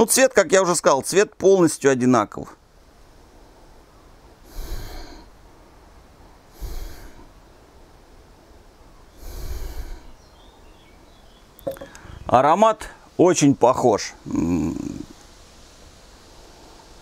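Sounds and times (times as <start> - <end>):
man sniffing: 4.4 - 5.4, 6.5 - 7.3, 9.2 - 10.2.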